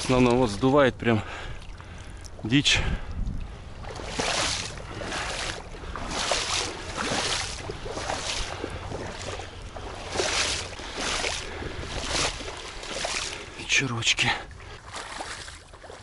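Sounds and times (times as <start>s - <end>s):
person wading through shallow water: 0.0s - 16.0s.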